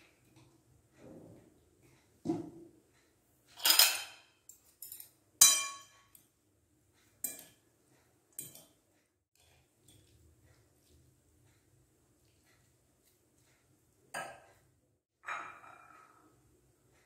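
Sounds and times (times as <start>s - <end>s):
fork clinking against glass bowl: 7.2s - 7.6s, 8.4s - 8.8s.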